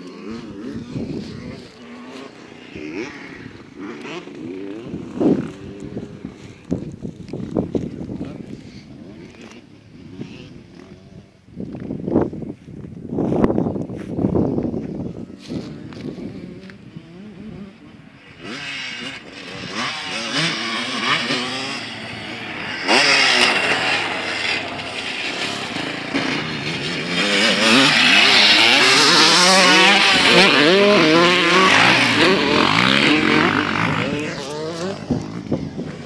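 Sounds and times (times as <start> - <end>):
motocross bikes revving past: 0.0 - 11.5, 15.0 - 36.0.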